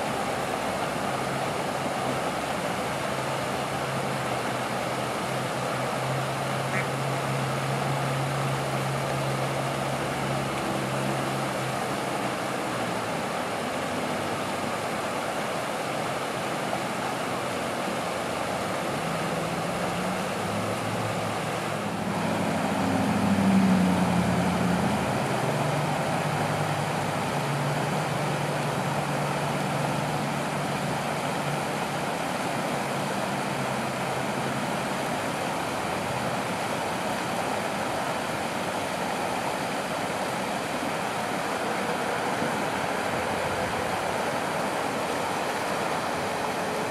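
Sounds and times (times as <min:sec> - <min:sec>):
flowing water rushing: 0:00.0 - 0:46.9
motor traffic hum: 0:00.0 - 0:46.9
vehicle passing: 0:19.4 - 0:27.8.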